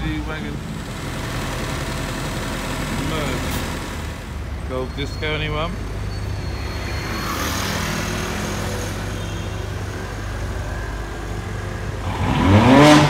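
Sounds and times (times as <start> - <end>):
vehicle engines idling: 0.0 - 13.0
rushing noise: 5.8 - 11.3.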